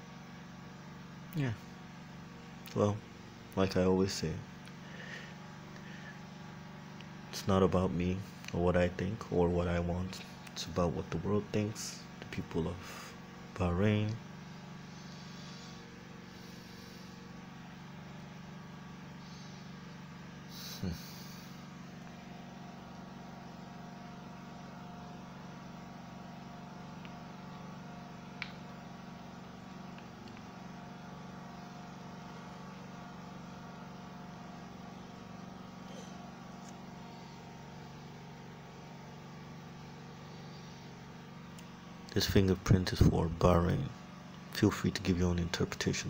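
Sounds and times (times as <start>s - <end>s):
low mechanical hum: 0.0s - 46.0s
small click: 28.4s - 28.6s.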